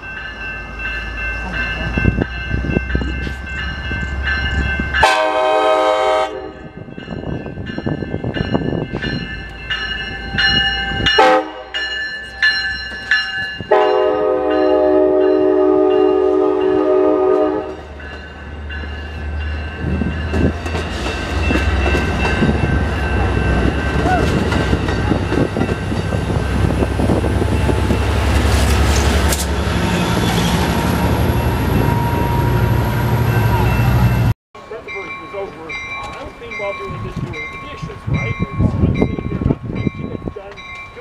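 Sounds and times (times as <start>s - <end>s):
bell ringing: 0.0s - 5.2s, 6.5s - 17.0s, 29.6s - 41.0s
train cars rumbling: 0.0s - 41.0s
locomotive horn: 5.0s - 6.7s, 11.2s - 11.8s, 13.7s - 17.8s.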